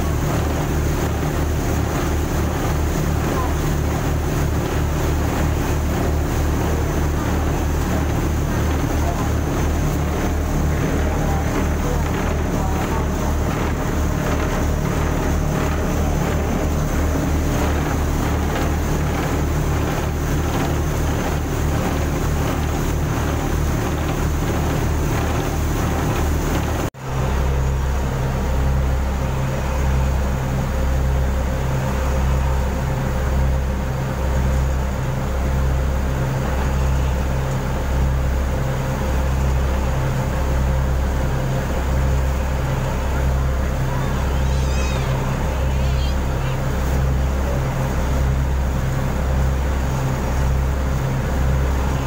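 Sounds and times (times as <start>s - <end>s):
boat engine drone: 0.0s - 52.0s
water rushing along hull: 0.0s - 52.0s.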